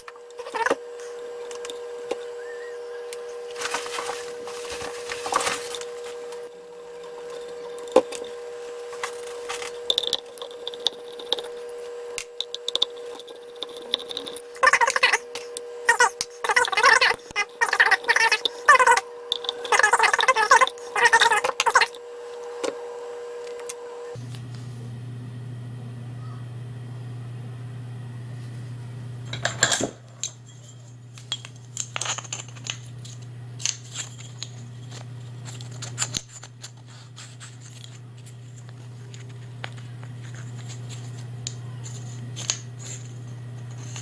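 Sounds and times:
steady low hum: 0.0s - 44.0s
metal parts clicking and scraping: 9.0s - 11.6s, 12.2s - 22.0s, 29.3s - 44.0s.

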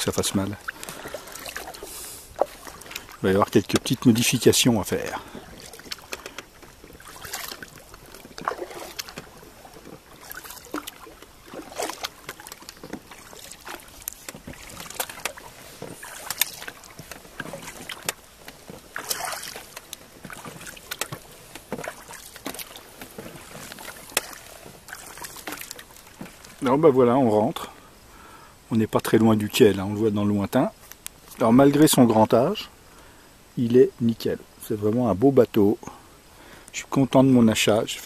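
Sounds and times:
water lapping and dripping: 0.0s - 29.2s.

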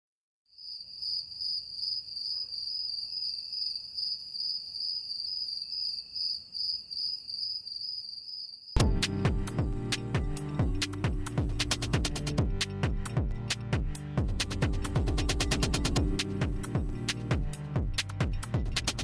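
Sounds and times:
crickets chirping: 0.5s - 8.8s
music with sharp beat: 8.8s - 19.0s.

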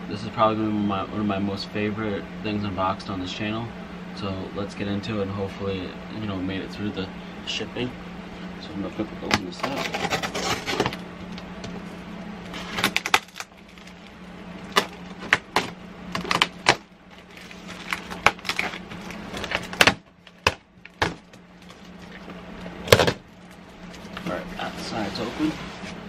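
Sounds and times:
steady low hum: 0.0s - 26.0s
packing tape ripping: 9.5s - 11.0s, 12.4s - 23.2s.

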